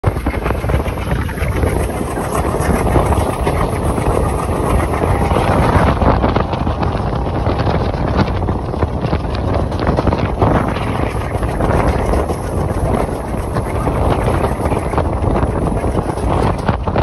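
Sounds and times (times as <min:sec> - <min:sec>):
train wheels rumbling on rails: 0:00.0 - 0:17.0
wind buffeting microphone: 0:00.0 - 0:17.0.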